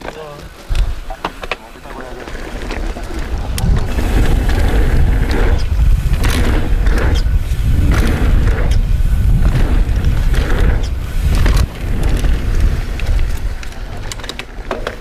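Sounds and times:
bike rattling clicks: 0:00.0 - 0:15.0
bike tyres rushing on dirt: 0:00.0 - 0:15.0
wind rumble on microphone: 0:01.8 - 0:15.0.

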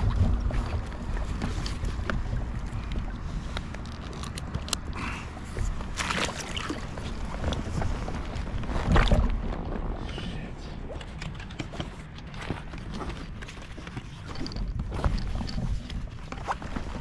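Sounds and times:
wind rumble on microphone: 0:00.0 - 0:17.0
strap rustling and buckle clicks: 0:00.7 - 0:05.0
foot splashing into water: 0:05.8 - 0:07.3.

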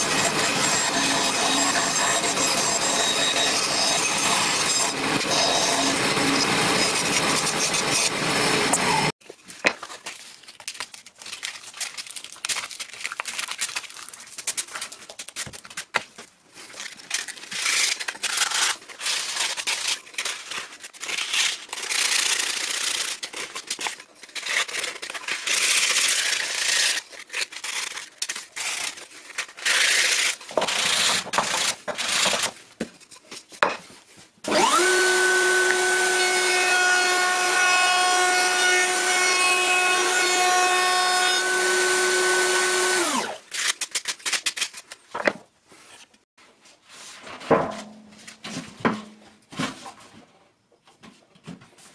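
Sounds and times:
band saw cutting wood: 0:00.0 - 0:09.2, 0:34.4 - 0:43.4
router motor high whine: 0:34.5 - 0:43.4.

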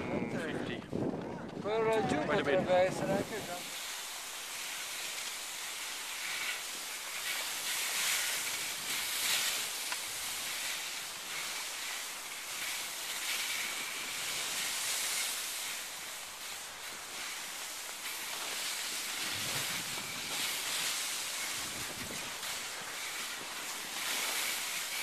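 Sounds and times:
wind on microphone: 0:00.0 - 0:04.0, 0:19.0 - 0:25.0
skis sliding over snow: 0:00.0 - 0:25.0.

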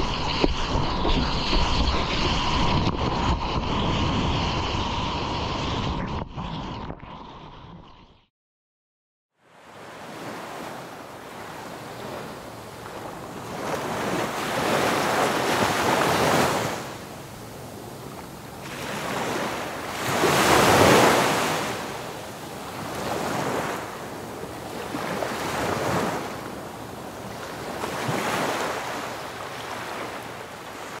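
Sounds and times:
ocean waves breaking: 0:09.4 - 0:31.0.

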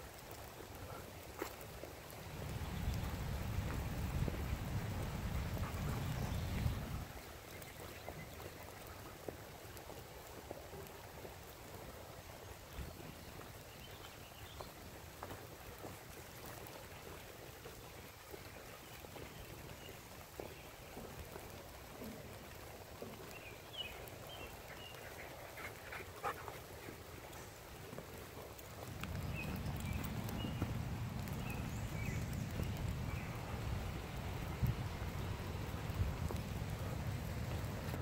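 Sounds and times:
dogs moving on wet ground: 0:00.0 - 0:38.0
low hush of rainy woods: 0:00.0 - 0:38.0.

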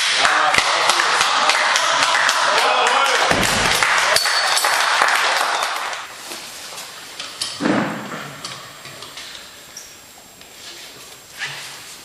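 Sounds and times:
audience clapping: 0:00.0 - 0:06.1.

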